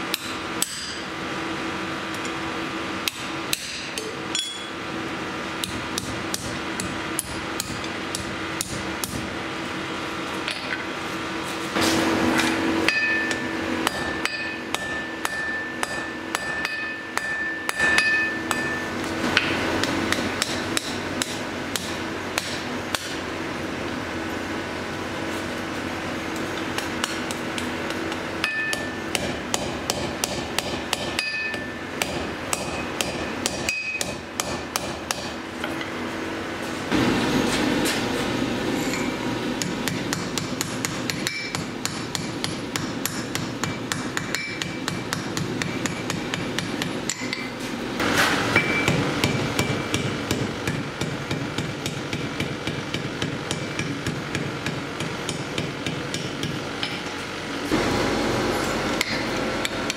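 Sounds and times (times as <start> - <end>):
hammer striking steel on anvil: 0.0 - 1.1, 3.0 - 4.8, 5.6 - 9.3, 11.8 - 23.2, 26.5 - 36.0, 38.8 - 57.1, 59.0 - 59.9.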